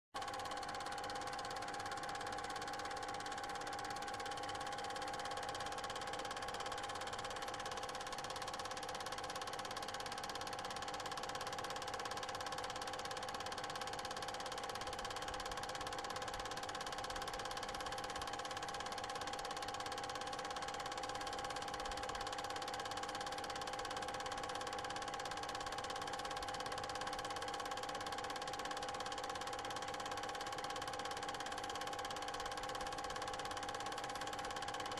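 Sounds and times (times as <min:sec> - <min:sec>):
film projector whirring: 0:00.2 - 0:34.9.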